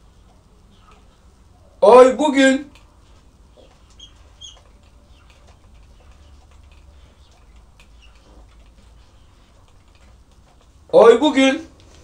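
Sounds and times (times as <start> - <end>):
marker tip squeaks: 3.6 - 5.5.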